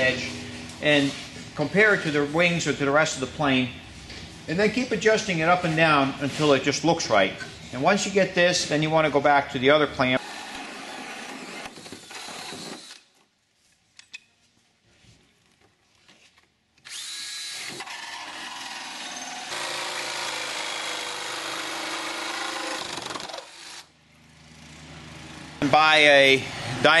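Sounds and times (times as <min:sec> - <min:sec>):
jigsaw cutting fiberglass: 0:10.2 - 0:13.0, 0:16.8 - 0:23.9.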